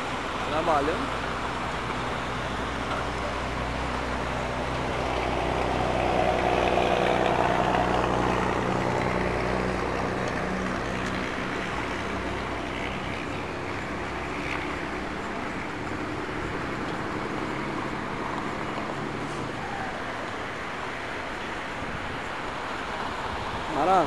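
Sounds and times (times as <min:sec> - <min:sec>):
low engine hum: 0:00.0 - 0:24.0
road traffic noise: 0:00.0 - 0:24.0.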